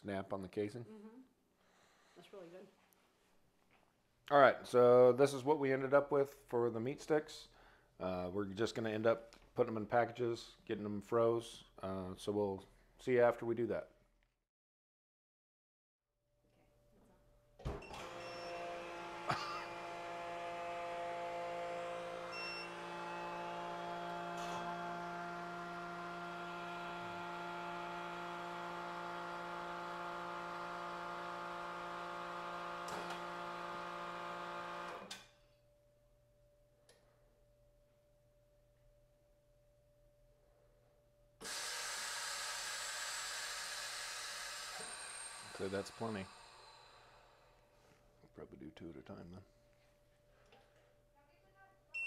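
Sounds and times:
vacuum sealer pump humming: 17.7s - 35.1s, 41.4s - 47.8s.

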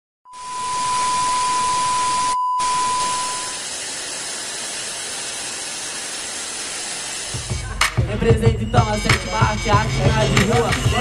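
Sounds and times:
high test-tone beep: 0.3s - 3.6s
tv static hiss: 0.4s - 7.8s.

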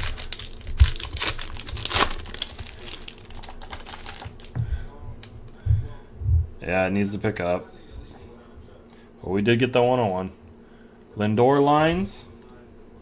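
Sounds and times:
foil pack crinkling and tearing: 0.0s - 4.6s.

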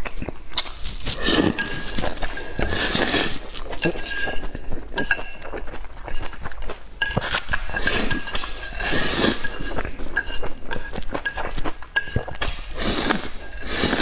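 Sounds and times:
wet chewing: 0.0s - 14.0s
noodles being slurped: 0.2s - 14.0s
chopsticks clinking against bowl: 1.4s - 12.6s.

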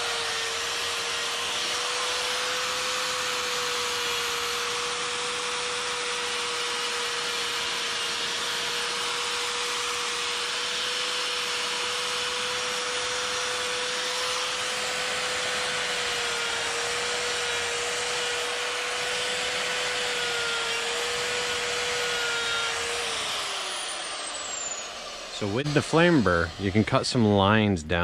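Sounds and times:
die grinder grinding wood: 0.0s - 28.0s.

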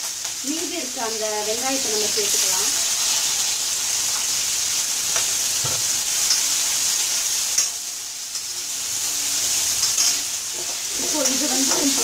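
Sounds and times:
onions sizzling in oil: 0.0s - 12.0s
metal spoon scraping pan: 9.8s - 12.0s.

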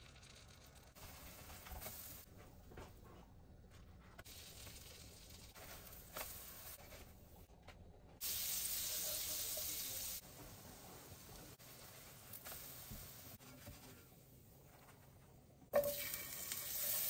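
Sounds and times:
pancake batter frying: 0.0s - 2.3s, 4.2s - 7.4s, 15.8s - 17.0s
butter sizzling in frying pan: 8.2s - 13.4s, 15.8s - 17.0s.

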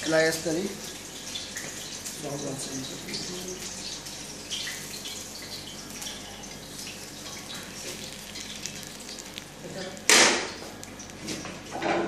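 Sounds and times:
steady hiss with crackles: 0.0s - 11.8s.

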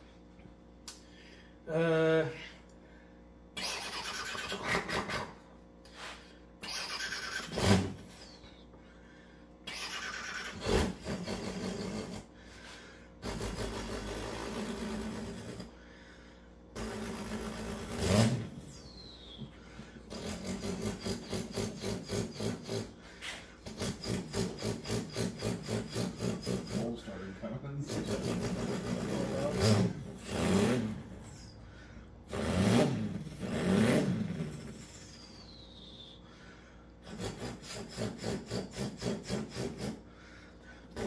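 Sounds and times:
man imitating engine idle chugging: 1.6s - 2.7s, 3.5s - 5.6s, 6.6s - 16.2s, 19.5s - 33.6s, 34.2s - 41.0s
man imitating engine cranking: 1.7s - 2.6s, 3.6s - 5.5s, 6.6s - 8.4s, 9.6s - 12.4s, 13.2s - 15.8s, 16.8s - 18.8s, 19.8s - 36.1s, 37.0s - 41.0s.

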